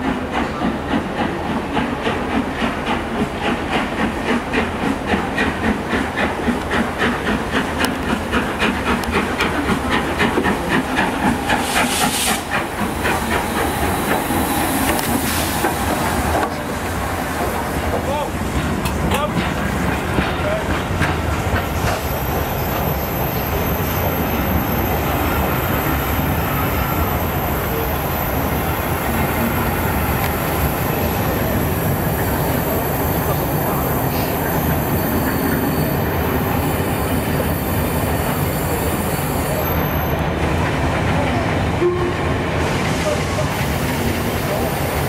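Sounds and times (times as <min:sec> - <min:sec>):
train wheels rumbling on rail: 0:00.0 - 0:45.0
high wheel squeal: 0:29.2 - 0:40.2.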